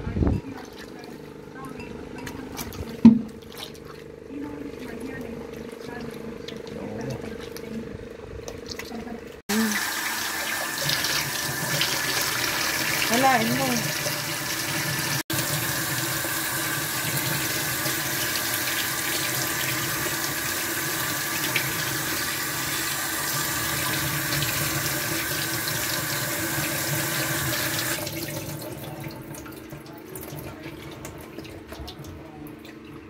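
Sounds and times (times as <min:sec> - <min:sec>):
tap water splashing in sink: 0:02.2 - 0:07.8, 0:08.4 - 0:33.0
wet squeezing sounds: 0:02.3 - 0:14.2.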